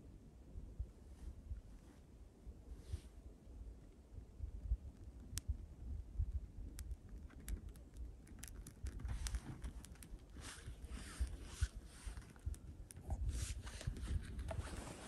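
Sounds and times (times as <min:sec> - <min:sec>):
twigs rustling and snapping: 0:06.7 - 0:13.0.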